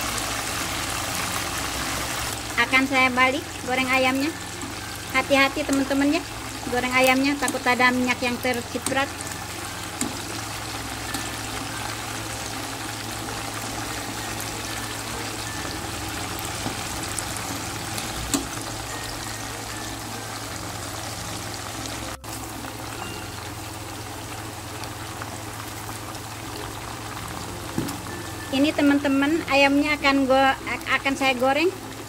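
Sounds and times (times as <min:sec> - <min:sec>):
chicken sizzling in hot oil: 0:00.0 - 0:32.0
metal tongs clicking on pan: 0:10.0 - 0:10.2, 0:18.3 - 0:18.5.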